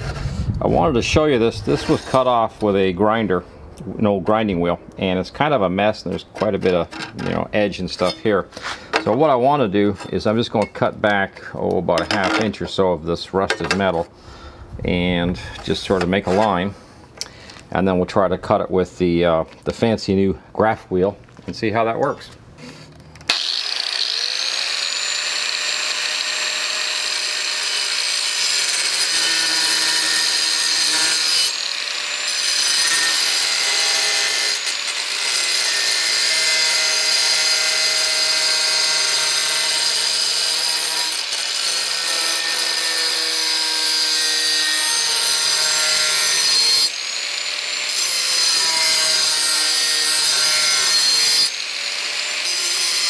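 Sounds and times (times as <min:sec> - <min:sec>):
angle grinder cutting sheet steel: 0:23.3 - 0:53.0.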